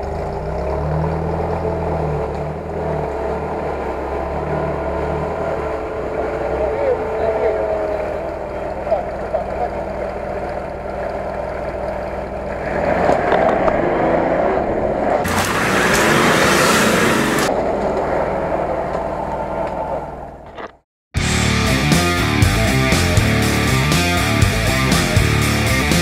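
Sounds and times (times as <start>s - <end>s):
engine revving under load: 0.0s - 20.6s
tyres spinning in mud: 5.8s - 18.0s
rock music with electric guitar: 21.2s - 26.0s.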